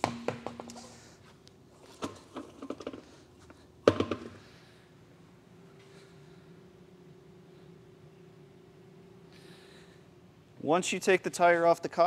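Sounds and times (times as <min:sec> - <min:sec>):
wheel thumping on floor: 0:00.0 - 0:00.8.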